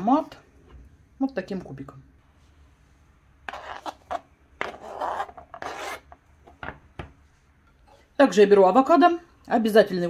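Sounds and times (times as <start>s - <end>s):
knife scraping cutting board: 3.5s - 6.2s.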